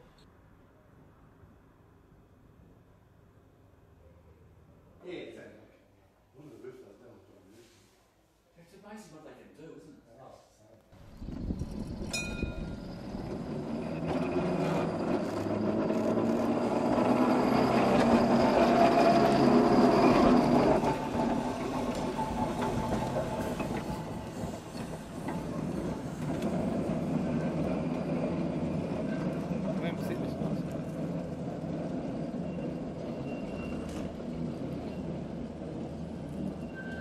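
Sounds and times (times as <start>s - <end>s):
electric tram running on track: 11.0s - 37.0s.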